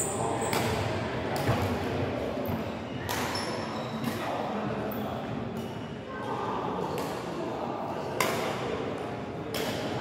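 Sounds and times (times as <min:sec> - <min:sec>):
badminton rackets smacking shuttlecock: 0:09.5 - 0:09.9.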